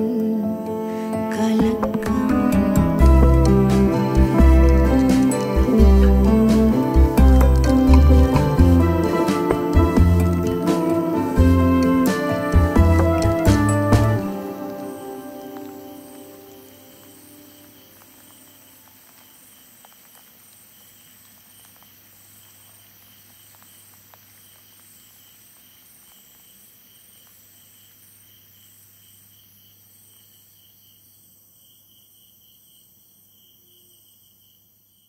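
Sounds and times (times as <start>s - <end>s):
crickets chirping: 0.0s - 35.0s.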